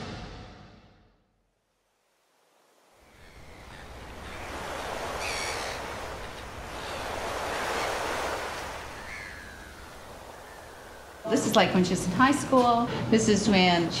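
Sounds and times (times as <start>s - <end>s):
ocean surf breaking on beach: 2.5s - 11.5s.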